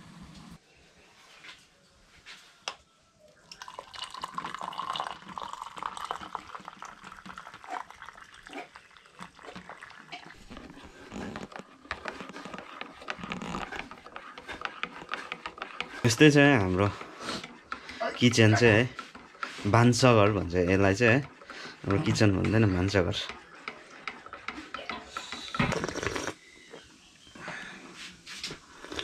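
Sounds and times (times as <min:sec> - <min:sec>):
tea pouring and splashing: 0:03.5 - 0:14.4
spoon stirring and clinking in mug: 0:03.6 - 0:10.6.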